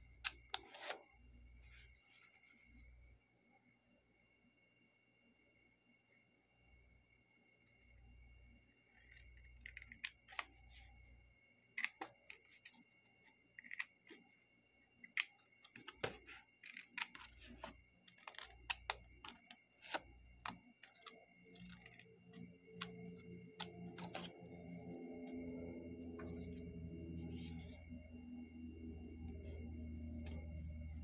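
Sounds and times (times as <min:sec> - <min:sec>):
scissors snipping paper: 0:15.1 - 0:24.4.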